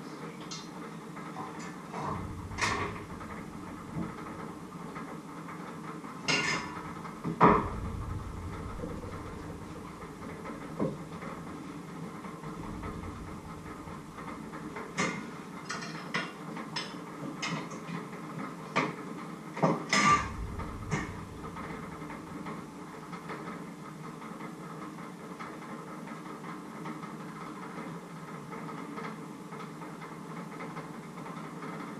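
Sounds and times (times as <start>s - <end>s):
low steady hum: 1.9s - 5.1s, 6.2s - 15.7s, 20.0s - 23.7s.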